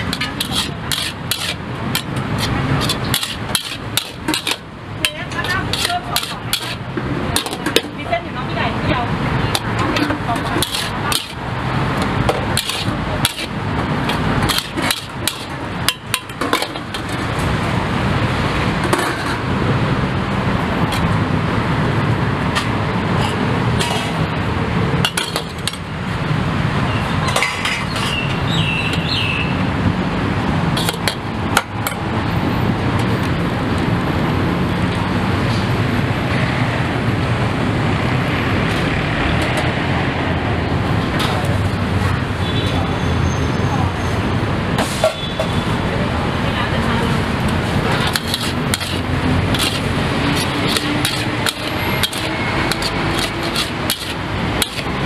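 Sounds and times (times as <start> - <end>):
metal spatula scraping a wok: 0.0 - 8.6, 9.4 - 17.5, 18.8 - 19.5, 22.6 - 24.3, 25.0 - 25.8, 27.2 - 28.4, 30.8 - 31.2, 47.6 - 55.0
steady rushing noise: 45.8 - 55.0.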